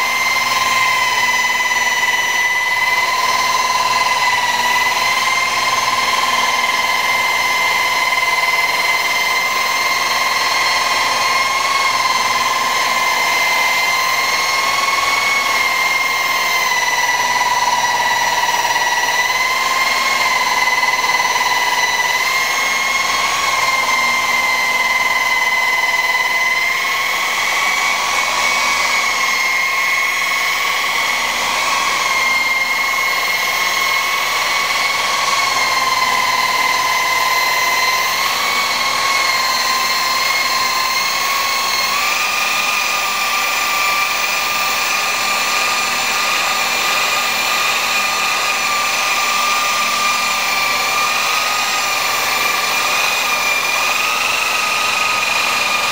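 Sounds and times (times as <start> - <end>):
electric polisher whining: 0.0 - 55.9.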